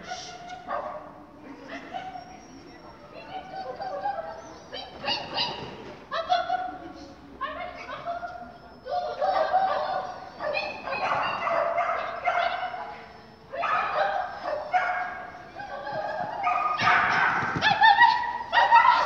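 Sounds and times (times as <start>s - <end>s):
dog barking: 0.5s - 1.2s, 9.2s - 12.8s, 13.5s - 19.0s.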